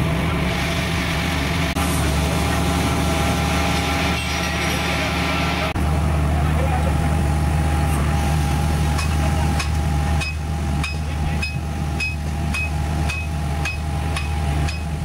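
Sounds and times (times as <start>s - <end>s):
low engine hum: 0.0s - 15.0s
hammer clanging on metal: 9.0s - 14.9s.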